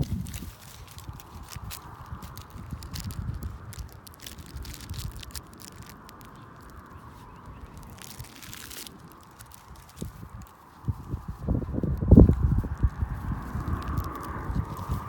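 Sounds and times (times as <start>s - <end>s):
low rumble: 0.0s - 15.0s
soft rustling: 0.0s - 15.0s
small clicks: 0.2s - 10.1s.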